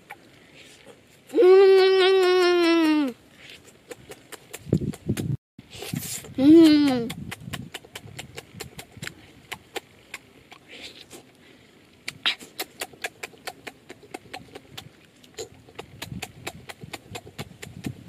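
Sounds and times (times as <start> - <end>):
child chewing noisily: 0.0 - 18.0
wet lip smacks: 3.4 - 5.2, 5.8 - 11.3, 12.0 - 18.0.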